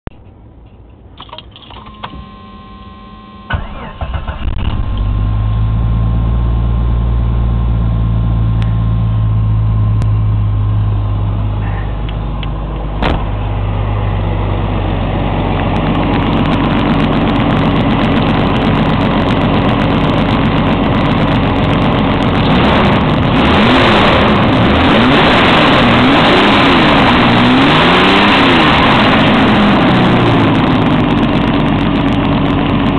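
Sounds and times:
car engine cranking: 0.1 - 2.2, 3.5 - 6.0
car engine idling: 0.1 - 32.9
car engine revving: 2.8 - 32.9.

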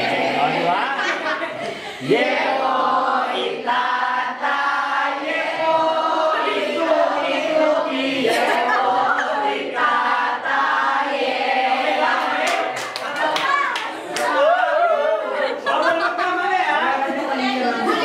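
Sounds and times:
group singing in unison: 0.0 - 13.0.

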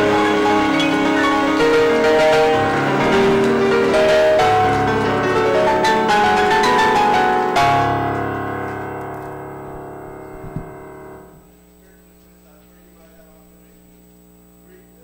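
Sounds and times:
sustained piano chord: 0.0 - 11.5.

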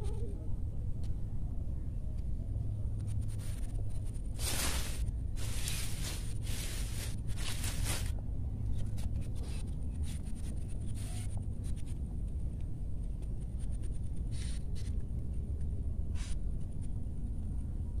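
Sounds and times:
low rumble: 0.0 - 18.0
short rustles and scrapes: 3.0 - 12.0
leafy vines rustling: 3.4 - 8.2.

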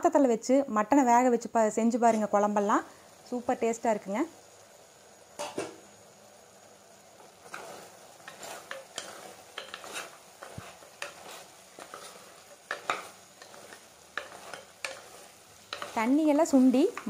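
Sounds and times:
meat sizzling: 0.8 - 17.0
spoon scraping a pot: 7.4 - 17.0.

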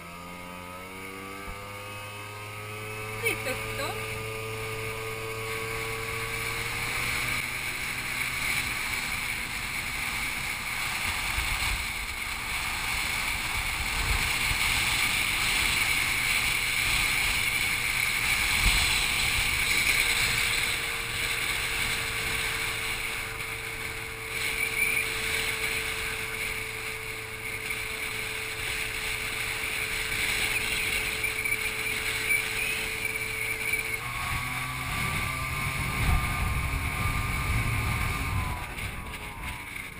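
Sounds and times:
scooter engine running: 0.0 - 39.9
wind rushing over microphone: 3.0 - 39.9.

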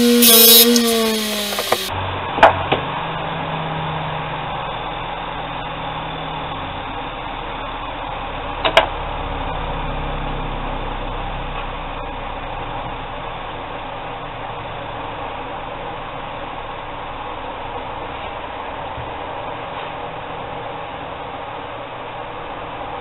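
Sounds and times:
bench grinder motor running: 0.0 - 2.0.

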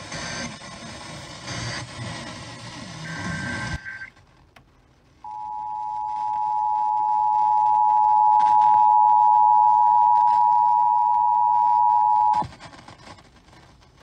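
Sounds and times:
two-tone alert signal on car radio: 5.3 - 12.4.

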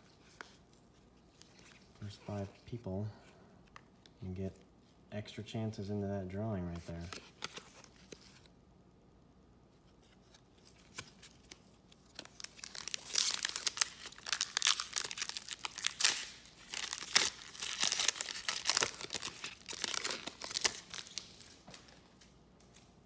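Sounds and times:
foil wrapper tearing and crinkling: 12.0 - 21.5.

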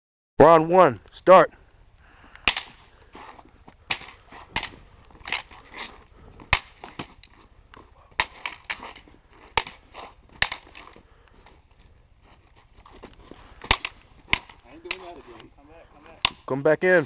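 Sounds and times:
crutches clacking together: 3.9 - 7.4, 8.2 - 11.6.

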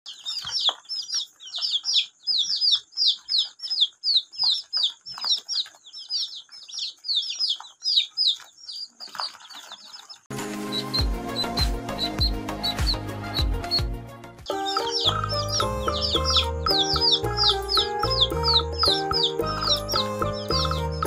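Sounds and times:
ducklings and chicks peeping: 0.1 - 13.9, 14.5 - 21.0
music: 10.3 - 21.0.

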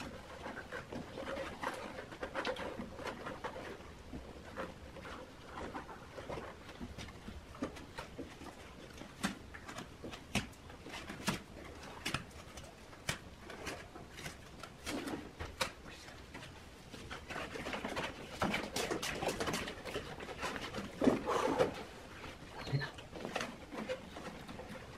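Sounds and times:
cardboard trays tapping and rustling: 0.0 - 24.9.

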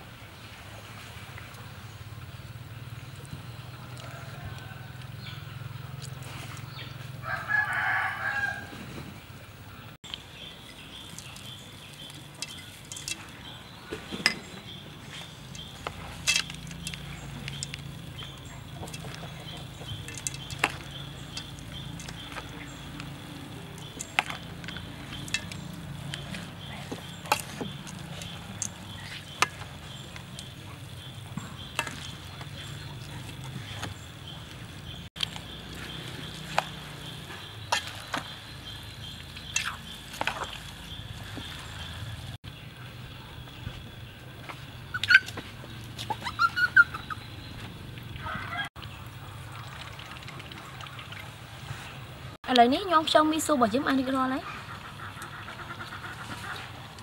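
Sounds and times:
rooster crowing: 7.2 - 8.8, 48.2 - 48.7
utensils clicking on steel bowl: 15.5 - 33.6.

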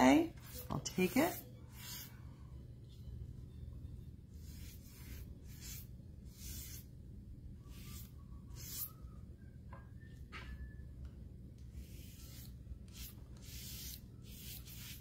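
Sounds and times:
low steady hum: 0.0 - 15.0
scratchy paintbrush strokes: 0.3 - 2.2, 4.4 - 6.9, 7.7 - 8.9, 11.8 - 15.0.

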